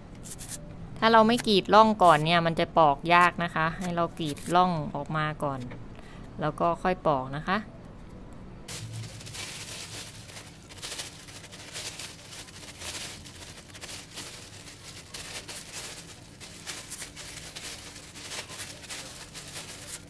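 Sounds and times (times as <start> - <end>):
knife scraping banana skin: 3.8 - 4.6
plastic gloves and bag crinkling: 8.7 - 20.0.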